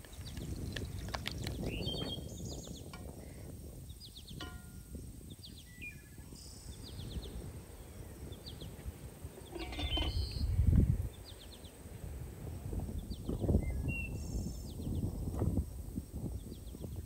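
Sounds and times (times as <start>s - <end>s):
small birds chirping: 0.0s - 17.0s
metal lid clinking on pot: 4.4s - 5.0s, 9.5s - 10.2s.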